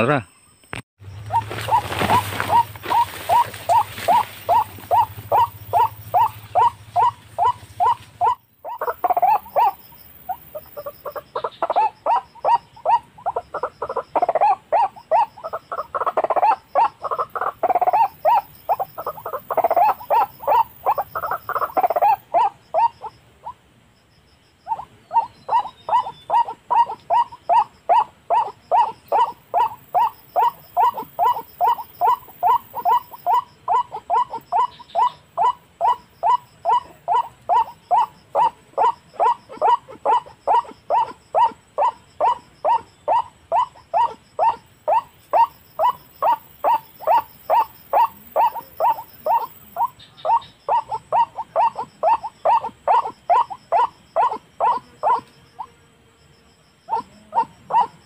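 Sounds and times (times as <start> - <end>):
waterhens croaking calls: 1.0 - 23.6, 24.6 - 55.6, 56.9 - 58.0.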